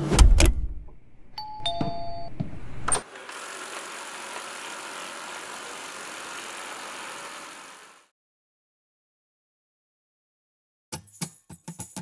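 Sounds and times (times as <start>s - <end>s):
two-tone doorbell chime: 1.4s - 2.4s.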